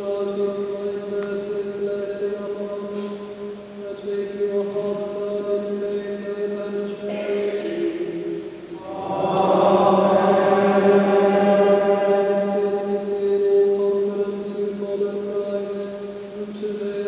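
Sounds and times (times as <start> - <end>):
sacred music held chord: 7.1 - 15.2
low drone: 7.2 - 15.3.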